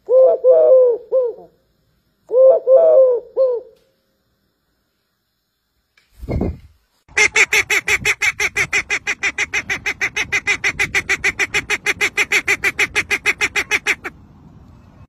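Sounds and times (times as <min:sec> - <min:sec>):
dove cooing: 0:00.0 - 0:01.6, 0:02.3 - 0:03.8
duck quacking rapidly: 0:07.1 - 0:14.1.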